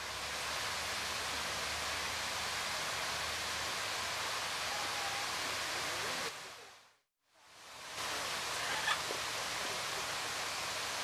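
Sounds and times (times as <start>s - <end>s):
water hissing: 7.7s - 11.0s.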